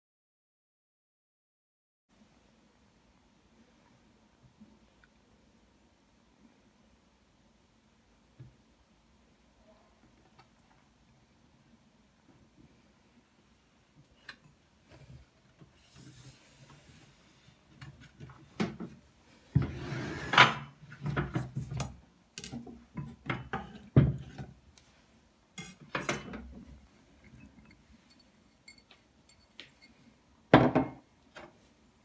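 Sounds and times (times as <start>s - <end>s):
utensils and glass bowls clinking: 27.2s - 29.9s.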